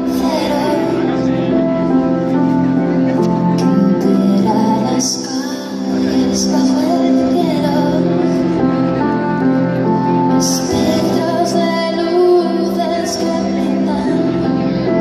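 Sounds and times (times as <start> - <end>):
woman singing: 0.0 - 1.5, 3.6 - 8.6, 10.2 - 15.0
keyboard chords: 0.0 - 15.0.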